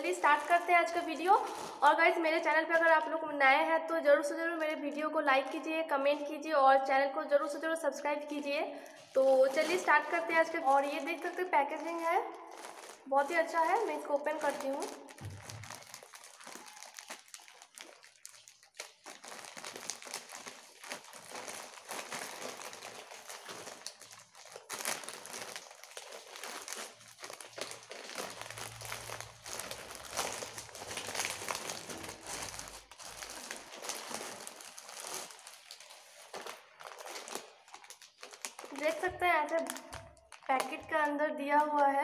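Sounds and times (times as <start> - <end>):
plastic mailer bag crinkling: 0.0 - 3.1, 8.3 - 41.0
plastic packet pulled out: 8.9 - 40.7.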